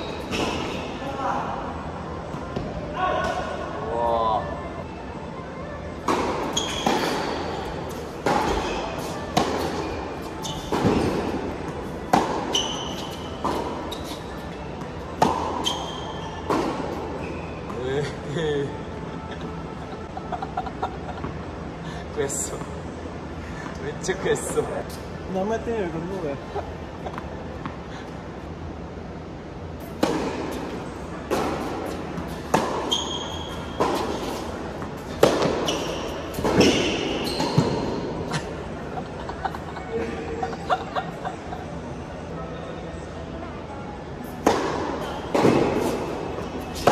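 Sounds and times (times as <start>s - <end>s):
court shoes squeaking: 0.0s - 1.1s, 6.0s - 18.2s, 29.8s - 42.0s, 44.2s - 46.9s
tennis ball struck and bouncing: 12.1s - 14.2s, 15.2s - 15.9s, 31.3s - 38.0s, 44.4s - 46.9s.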